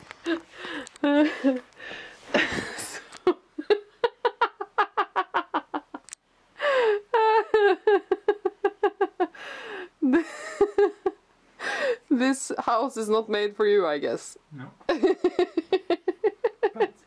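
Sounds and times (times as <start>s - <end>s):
woman laughing hard: 2.3s - 6.0s, 6.6s - 9.4s, 10.0s - 11.2s, 14.9s - 17.0s.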